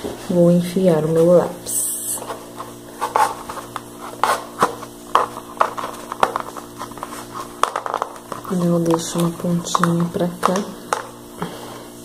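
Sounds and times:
pencil scraping cardboard: 0:02.2 - 0:07.6.

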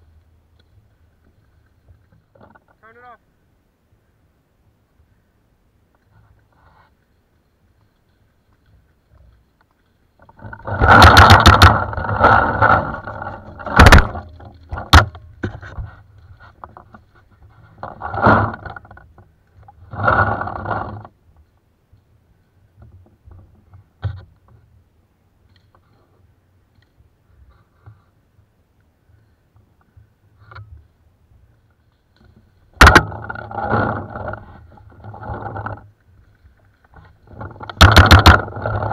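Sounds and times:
scraping against body camera: 0:06.0 - 0:07.2, 0:07.8 - 0:21.2
sharp knocks: 0:10.7 - 0:15.6, 0:32.8 - 0:34.0, 0:37.6 - 0:38.8.

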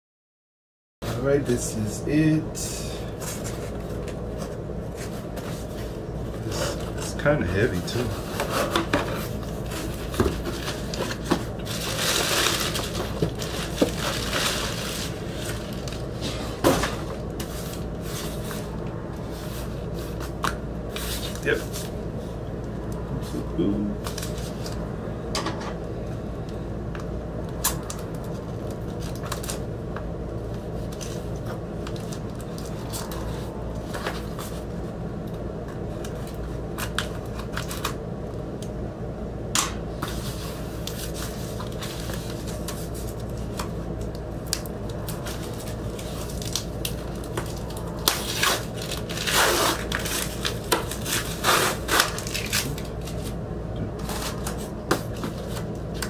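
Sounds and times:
steady low hum: 0:01.0 - 0:56.0
plastic wrap crinkling: 0:09.3 - 0:16.2, 0:40.3 - 0:53.4.

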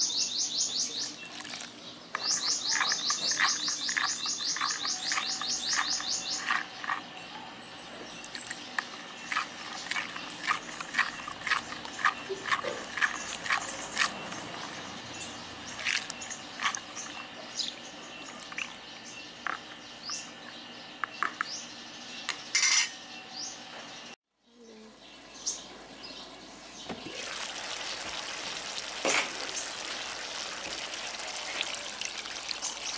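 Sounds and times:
birds chirping and trilling: 0:00.0 - 0:32.9.

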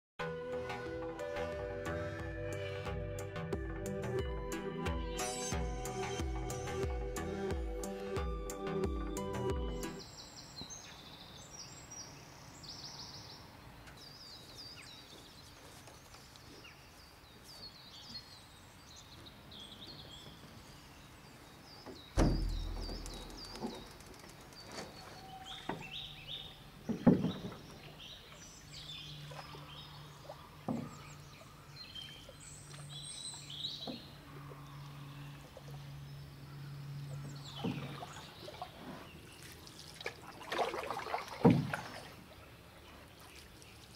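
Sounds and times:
birds chirping: 0:00.4 - 0:43.9
canoe hull thumping and knocking: 0:22.2 - 0:23.9, 0:26.8 - 0:27.8, 0:30.6 - 0:31.1, 0:41.4 - 0:42.0.

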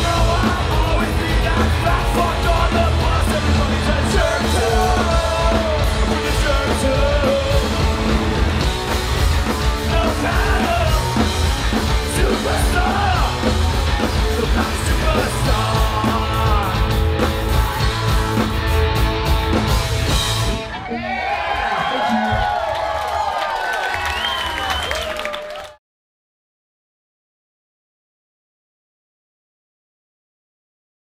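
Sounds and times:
person singing lead vocal: 0:00.0 - 0:08.5, 0:09.6 - 0:18.5
punk rock band playing: 0:00.0 - 0:21.2.

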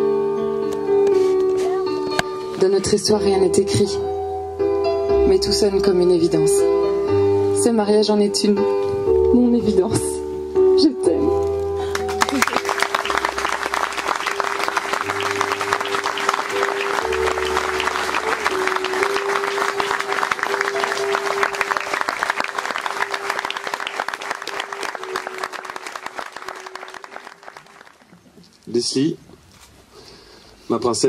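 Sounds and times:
instrumental background music: 0:00.0 - 0:27.2
crowd applauding: 0:11.8 - 0:28.3.

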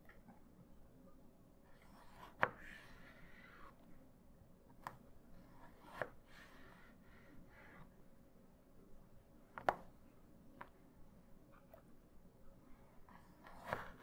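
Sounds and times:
knife slicing potato: 0:01.8 - 0:03.8, 0:04.8 - 0:06.9, 0:13.2 - 0:14.0.

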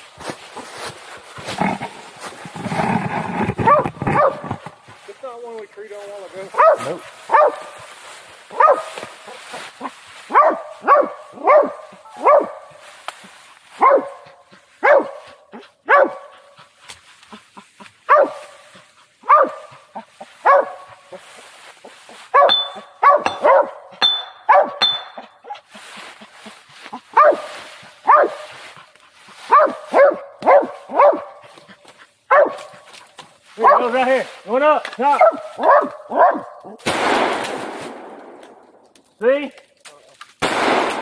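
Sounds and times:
dog barking: 0:03.6 - 0:04.6, 0:06.5 - 0:07.8, 0:08.5 - 0:09.0, 0:10.3 - 0:12.8, 0:13.8 - 0:16.5, 0:18.1 - 0:18.6, 0:19.2 - 0:21.0, 0:22.3 - 0:24.8, 0:27.1 - 0:28.5, 0:29.4 - 0:31.5, 0:32.3 - 0:32.9, 0:33.6 - 0:34.0, 0:35.1 - 0:36.8.

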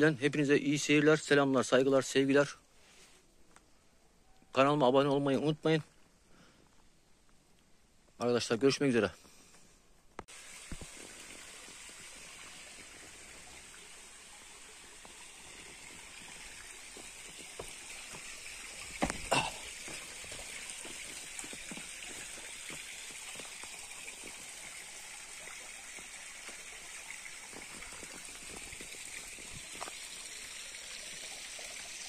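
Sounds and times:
stream running over rocks: 0:10.2 - 0:32.0.

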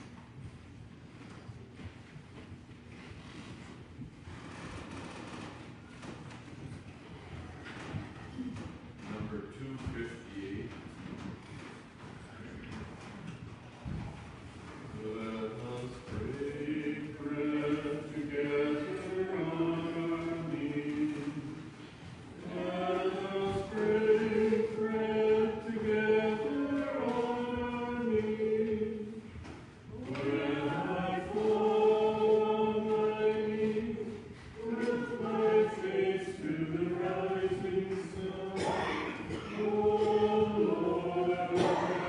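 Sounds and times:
choir singing a hymn: 0:14.9 - 0:42.0.

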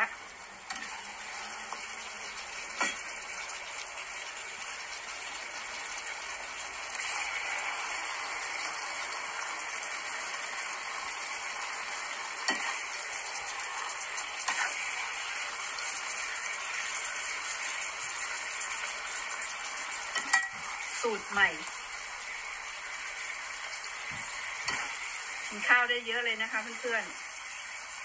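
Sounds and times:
mushrooms sizzling in frying pan: 0:00.0 - 0:28.0
utensil clicking against pan: 0:12.4 - 0:14.8.

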